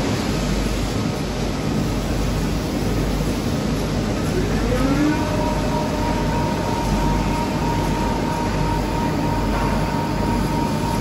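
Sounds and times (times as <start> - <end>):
lathe spindle humming and whining: 0.3 - 11.0.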